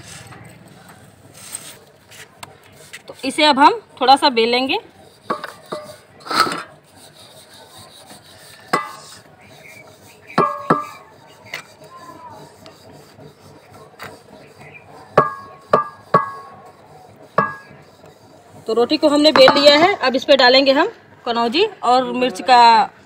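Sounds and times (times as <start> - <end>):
rolling pin rubbing on dough: 1.2 - 20.9
rolling pin knocking on stone: 5.3 - 6.0, 10.3 - 11.0, 15.1 - 16.6, 19.3 - 19.8.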